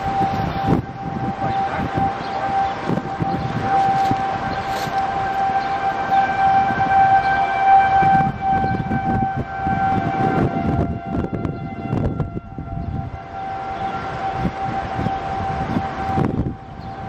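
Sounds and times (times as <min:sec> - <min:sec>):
tornado warning siren: 0:00.0 - 0:17.0.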